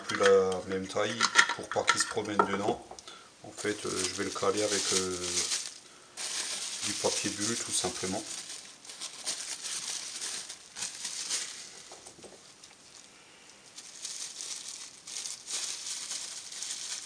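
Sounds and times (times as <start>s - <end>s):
bubble wrap crinkling: 3.6s - 17.0s.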